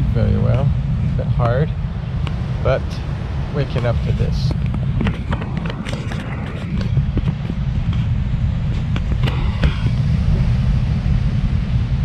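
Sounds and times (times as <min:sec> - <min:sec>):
wind buffeting microphone: 0:00.0 - 0:12.0
rustles and knocks: 0:04.5 - 0:08.1.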